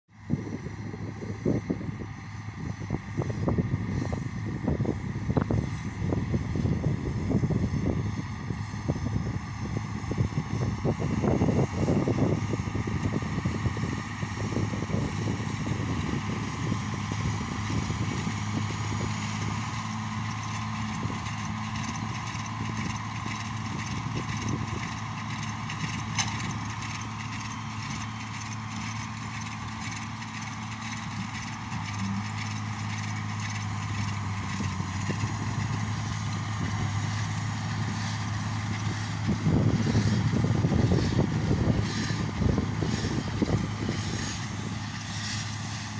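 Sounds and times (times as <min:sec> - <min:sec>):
tractor diesel engine running: 0:00.2 - 0:45.9.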